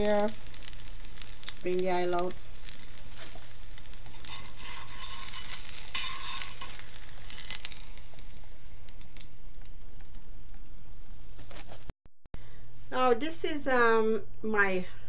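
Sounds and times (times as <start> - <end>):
hot oil sizzling in a pan: 0.0 - 11.9.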